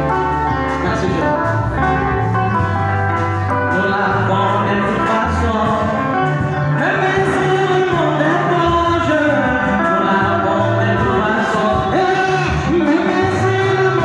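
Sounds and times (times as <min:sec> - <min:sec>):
held bass notes: 0:00.0 - 0:14.0
gospel song with singing: 0:03.5 - 0:14.0.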